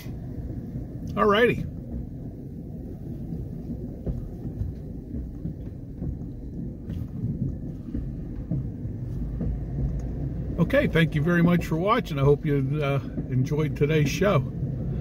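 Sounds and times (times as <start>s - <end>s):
truck rolling on rails rumble: 0.0s - 15.0s
faint knocks: 4.0s - 10.5s.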